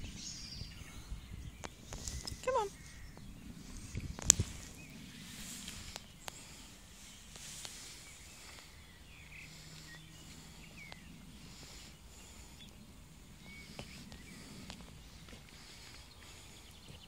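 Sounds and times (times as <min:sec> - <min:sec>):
faint bird chirps: 0:00.0 - 0:17.0
low steady background hum: 0:00.0 - 0:17.0
light ticks: 0:05.7 - 0:06.5, 0:10.8 - 0:11.1.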